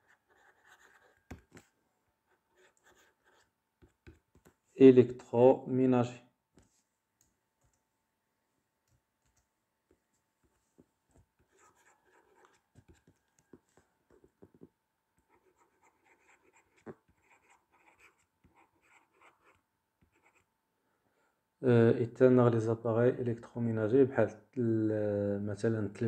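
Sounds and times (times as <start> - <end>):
pen scratching on paper: 0.0 - 1.7, 2.3 - 4.5, 11.4 - 13.2, 14.1 - 20.5.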